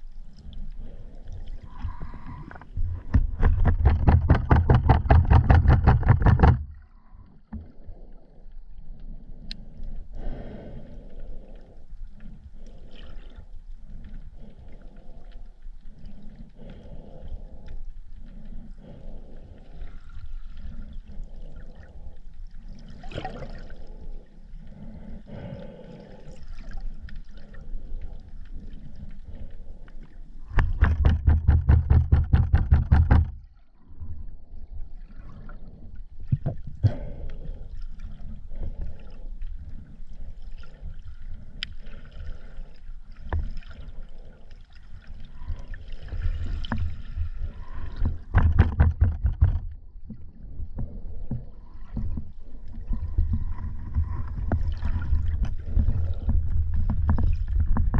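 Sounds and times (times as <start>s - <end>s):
faint underwater crackling: 0.0s - 57.9s
underwater water movement: 0.0s - 57.9s.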